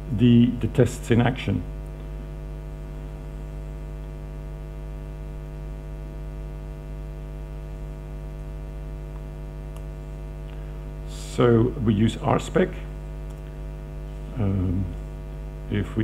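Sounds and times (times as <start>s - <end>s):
electrical mains hum: 0.0s - 16.0s
faint click: 13.2s - 13.6s.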